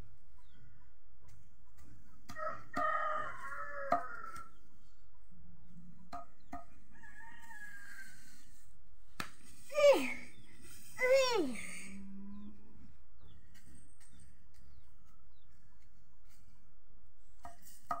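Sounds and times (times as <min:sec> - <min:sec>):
rooster crowing: 0:02.3 - 0:04.5, 0:06.9 - 0:08.3.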